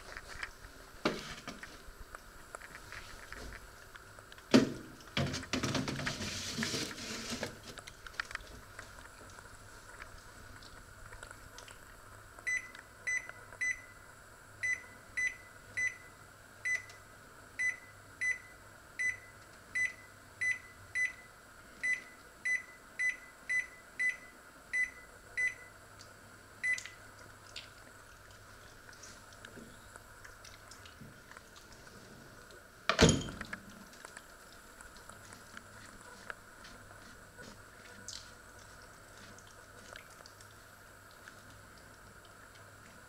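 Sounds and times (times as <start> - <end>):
microwave control panel beeping: 12.5 - 14.0, 14.6 - 16.1, 16.7 - 17.0, 17.6 - 25.7.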